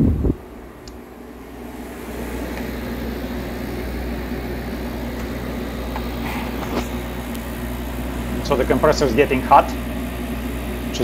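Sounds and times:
air conditioner compressor humming: 0.0s - 11.0s.

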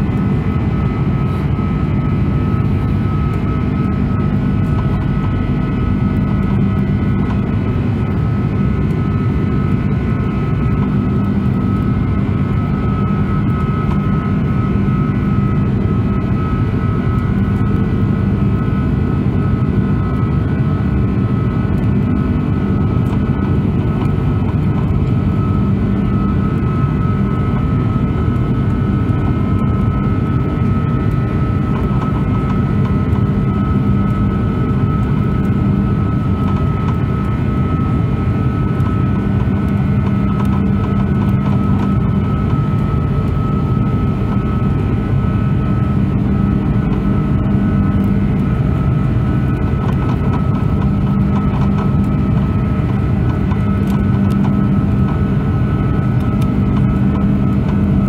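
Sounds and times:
engine high whine: 0.0s - 58.0s
jet engine low rumble: 0.0s - 58.0s.

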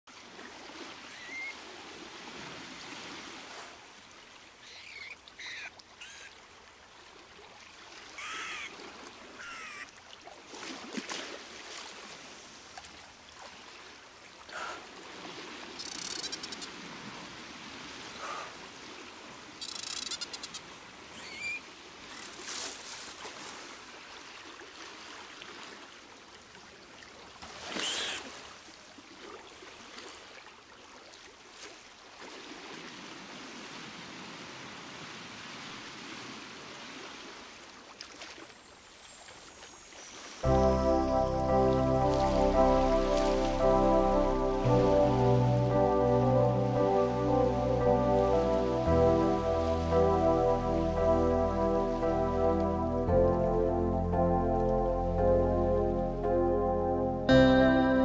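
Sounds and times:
bird chirps and trills: 4.6s - 6.3s, 9.4s - 9.9s, 15.8s - 16.7s, 19.6s - 20.6s.

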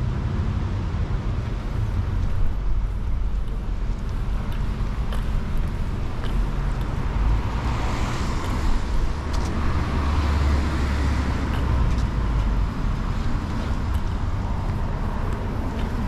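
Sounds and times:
low rumble of traffic: 0.0s - 16.0s
car tyres hissing on wet road: 6.5s - 9.0s.

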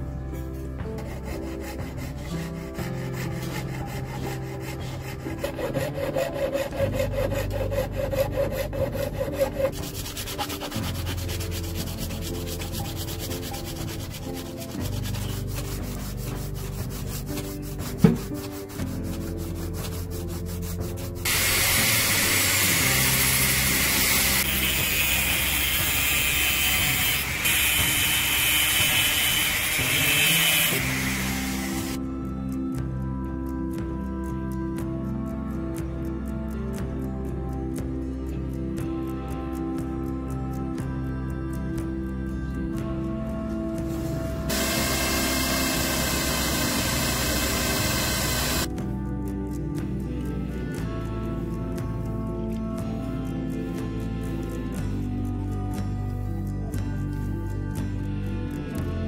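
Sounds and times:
background music: 0.0s - 59.0s
hacksaw rasping through metal: 0.7s - 32.0s, 44.5s - 48.7s
cutoff wheel cutting steel: 1.0s - 16.0s, 21.2s - 32.0s, 44.5s - 48.7s
sandpaper scraping: 1.0s - 32.0s, 43.8s - 48.7s.

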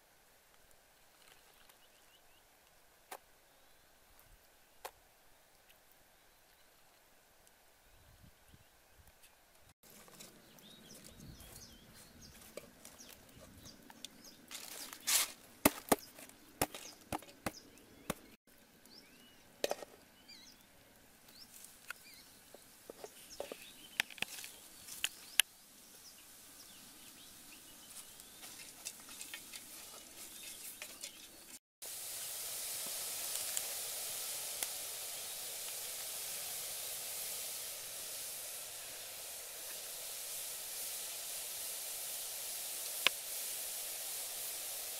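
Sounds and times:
steady hiss: 9.8s - 44.9s.

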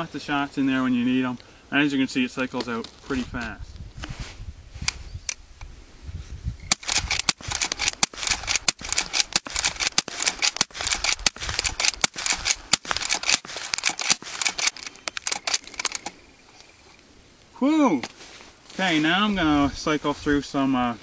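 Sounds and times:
rifle lever clacking: 6.7s - 16.2s
rifle shots cracking: 6.7s - 16.2s.

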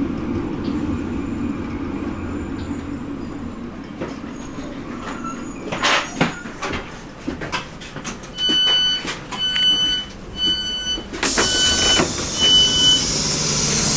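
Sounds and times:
door alarm beeping: 8.4s - 13.2s.

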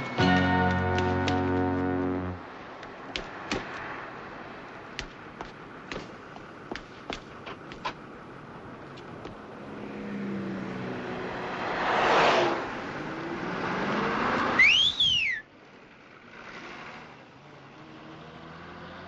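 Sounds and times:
cars passing: 0.0s - 19.0s
whistle rising and falling: 14.6s - 15.5s.

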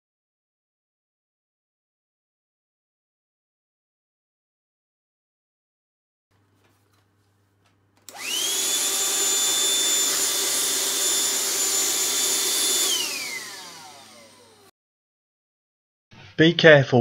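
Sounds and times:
handheld vacuum motor whine: 8.0s - 14.7s.

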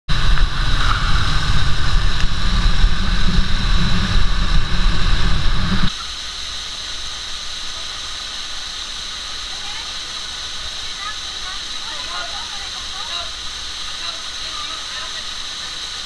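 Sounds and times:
wind rumbling on microphone: 0.1s - 5.9s
waterfall rushing hiss: 0.1s - 16.0s
motorcycle engine running: 0.2s - 5.9s.

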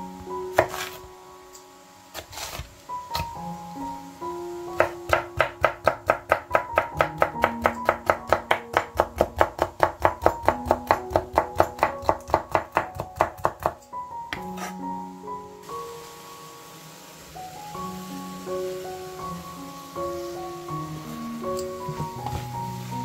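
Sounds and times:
knife chopping on wooden board: 0.6s - 1.0s.

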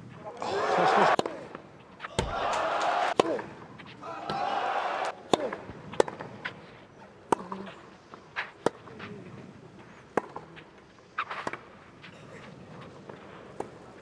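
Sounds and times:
racket striking tennis ball: 2.0s - 4.4s, 5.1s - 6.6s, 10.1s - 10.5s.

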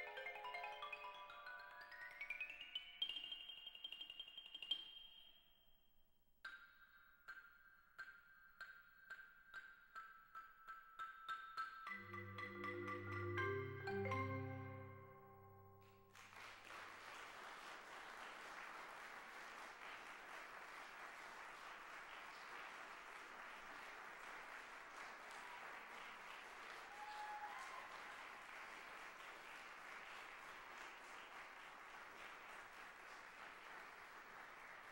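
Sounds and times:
audience applauding: 15.8s - 34.9s.

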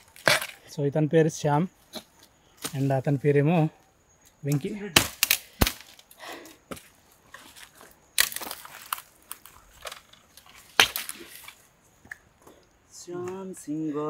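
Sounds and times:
bamboo and twigs crackling: 0.0s - 1.0s, 1.7s - 12.8s
loud sharp cracks: 5.0s - 6.0s.

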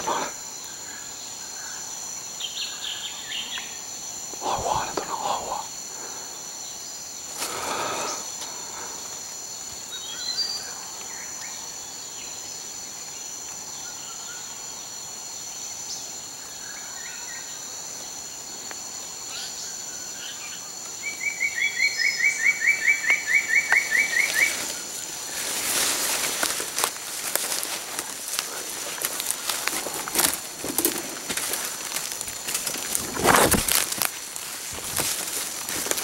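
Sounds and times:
high insect drone: 0.0s - 36.0s
rustling dry leaf litter: 24.0s - 36.0s.

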